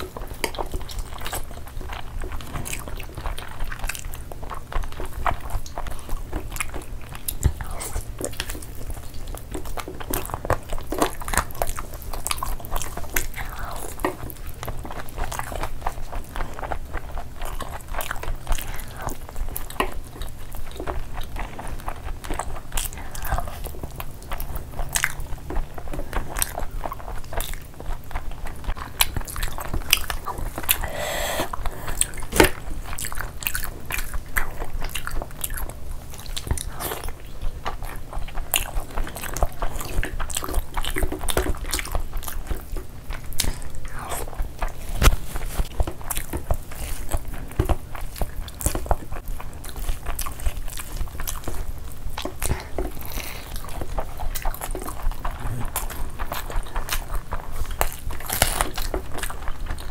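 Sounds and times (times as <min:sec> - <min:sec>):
fingers mixing wet rice: 0:00.0 - 0:59.9
people chewing and lip-smacking: 0:00.0 - 0:59.9
mouth clicks: 0:30.7 - 0:32.5.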